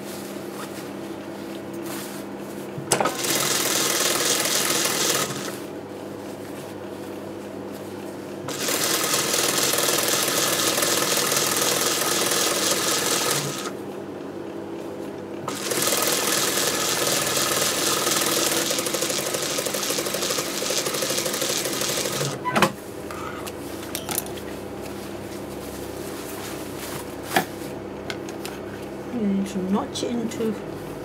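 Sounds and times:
sewing machine stitching: 3.0s - 5.6s, 8.5s - 13.8s, 15.5s - 22.4s.

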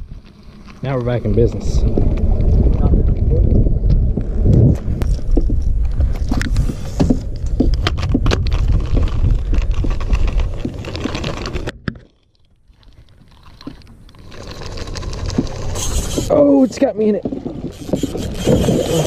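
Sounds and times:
low rumbling handling noise: 0.0s - 19.0s
fishing gear clicks and knocks: 4.2s - 19.0s.

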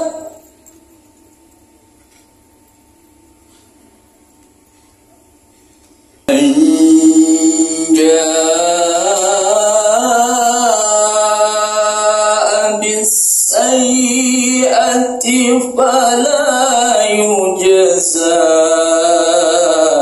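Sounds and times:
person chanting over loudspeaker: 0.0s - 0.4s, 6.3s - 20.0s.

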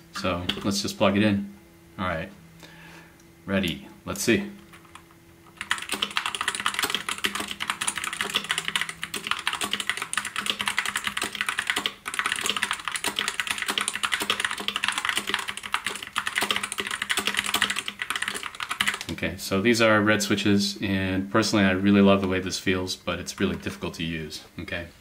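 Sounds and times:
mechanical keyboard typing: 4.7s - 19.1s.

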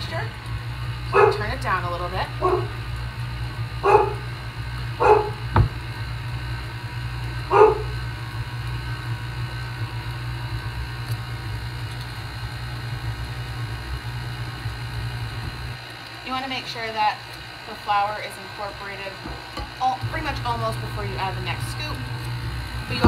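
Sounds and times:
stand mixer humming: 0.0s - 23.0s
dog barking: 1.1s - 1.5s, 2.4s - 2.8s, 3.8s - 4.3s, 5.0s - 5.4s, 7.5s - 8.0s.

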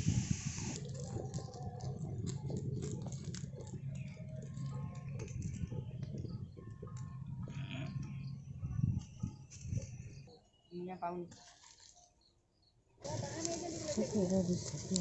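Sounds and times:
broad hiss: 0.0s - 0.8s.

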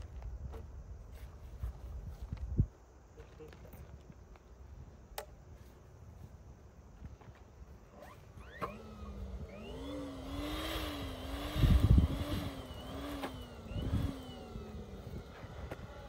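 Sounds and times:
wind rumble on microphone: 0.0s - 2.8s, 8.9s - 16.0s.

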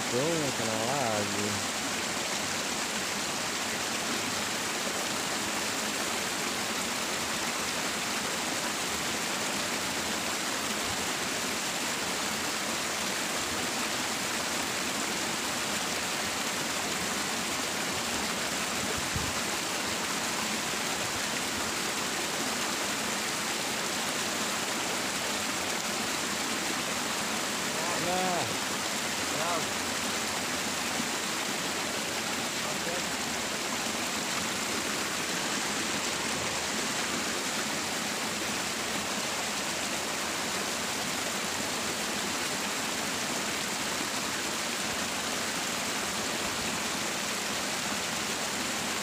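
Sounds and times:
water rushing in a ditch: 0.0s - 49.0s.

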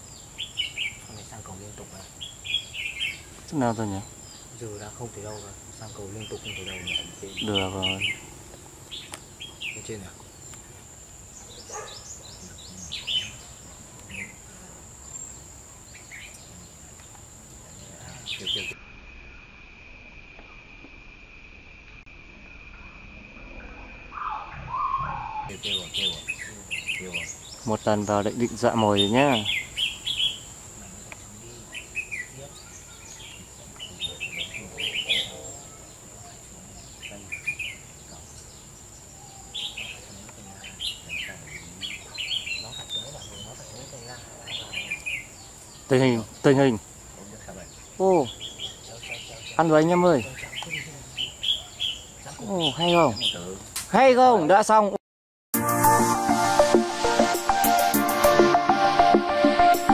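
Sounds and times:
bird chirping song phrases: 0.0s - 18.8s, 23.5s - 54.8s
high-pitched insect drone: 14.1s - 37.2s.

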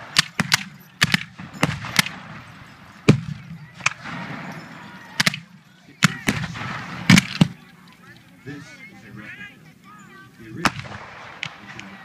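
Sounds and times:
musket shots with echo: 0.0s - 7.7s, 10.6s - 12.0s.

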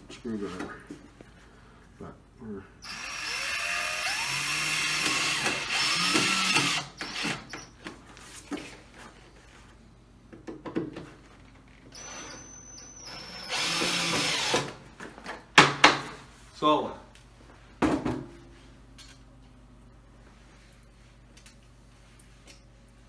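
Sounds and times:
cordless drill motor whining: 2.8s - 7.7s, 11.9s - 14.8s.

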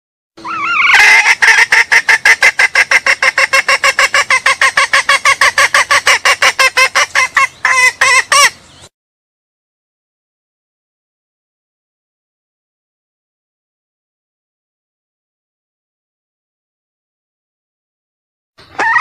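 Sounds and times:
junglefowl hen pulsed call: 0.4s - 8.6s, 18.6s - 19.0s.

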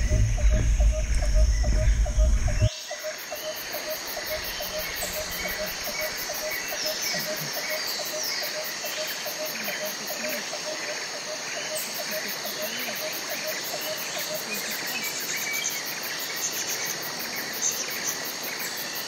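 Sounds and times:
fast even ticking: 0.0s - 2.7s
low rumble on microphone: 0.0s - 2.7s, 4.2s - 6.6s
bird chirps: 0.0s - 8.6s.

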